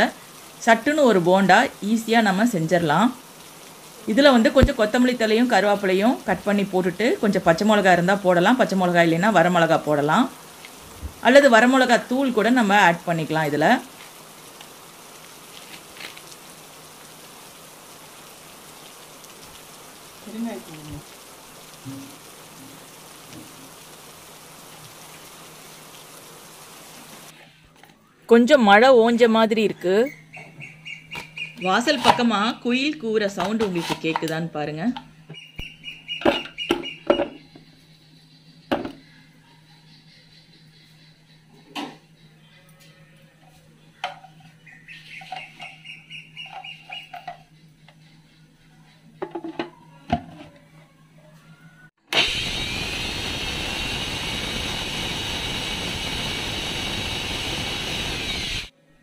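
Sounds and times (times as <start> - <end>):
steady rain falling: 0.0 - 27.4, 52.2 - 58.7
koel calling: 30.0 - 32.2, 44.6 - 49.2.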